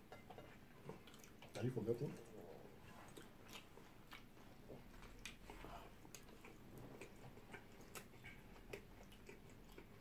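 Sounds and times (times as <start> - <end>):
soft chewing mouth clicks: 0.8 - 10.0.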